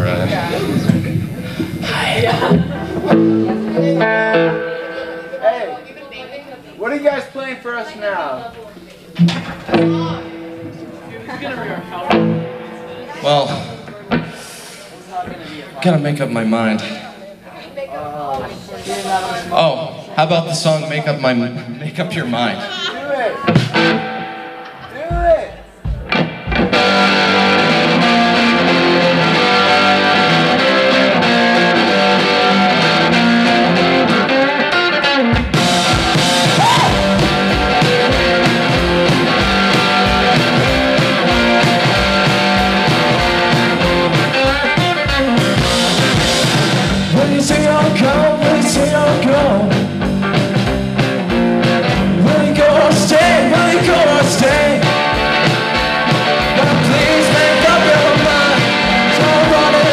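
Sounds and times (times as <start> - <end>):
drum kit beat: 0.0 - 6.1, 9.1 - 15.0, 23.4 - 59.9
electric guitar: 0.0 - 6.3, 9.2 - 15.4, 22.6 - 24.9, 25.8 - 59.9
person singing: 46.9 - 49.9, 52.0 - 55.0, 56.4 - 59.9.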